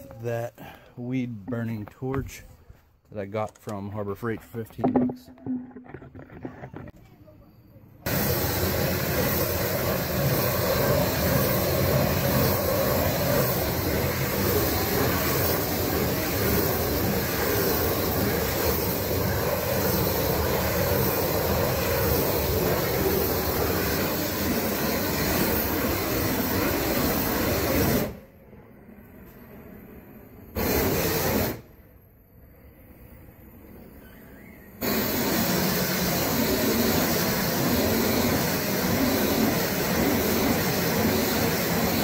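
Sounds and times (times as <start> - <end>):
propane torch flame rushing: 8.0 - 28.3, 29.7 - 31.8, 34.7 - 42.0.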